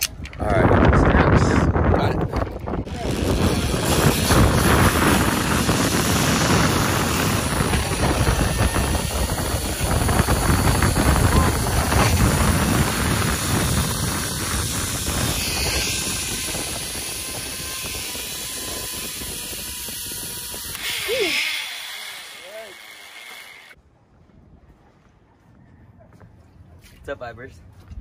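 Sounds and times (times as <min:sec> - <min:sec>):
wind buffeting microphone: 0:00.0 - 0:21.2.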